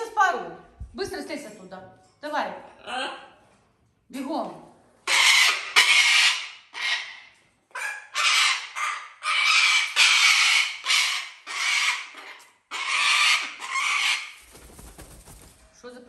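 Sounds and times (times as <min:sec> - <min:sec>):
parrot screeching: 0:05.0 - 0:14.4.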